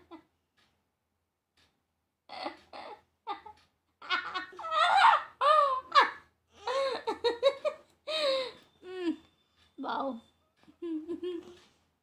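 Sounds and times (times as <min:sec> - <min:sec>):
woman laughing: 0:02.3 - 0:09.3, 0:10.7 - 0:11.6.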